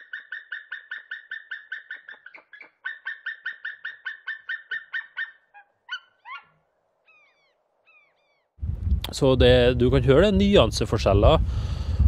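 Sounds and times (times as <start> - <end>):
eagle cackling call: 0.0 - 8.5
shorter eagle calls: 0.0 - 8.5.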